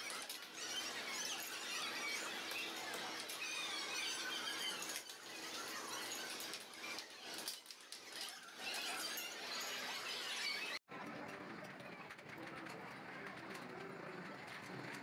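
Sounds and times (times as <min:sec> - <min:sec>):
wavering high-pitched game machine sounds: 0:00.0 - 0:10.8.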